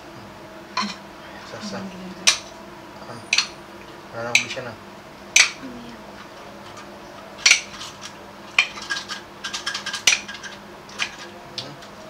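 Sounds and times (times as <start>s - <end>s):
knife clinking and scraping on plate: 3.3s - 3.5s.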